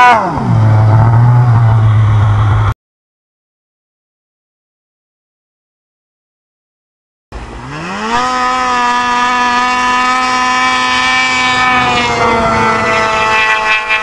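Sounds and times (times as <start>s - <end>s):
snowmobile engine accelerating: 0.0s - 2.7s, 7.4s - 14.0s.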